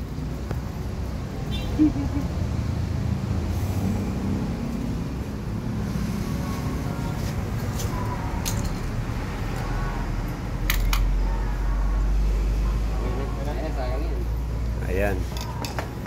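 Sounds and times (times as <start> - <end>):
metal tools clicking: 8.4 - 9.0.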